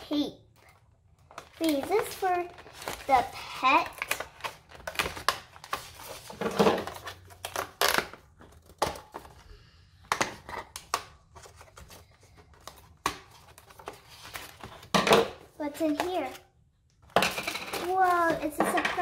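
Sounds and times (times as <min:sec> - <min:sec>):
plastic crinkling: 0:00.6 - 0:09.3.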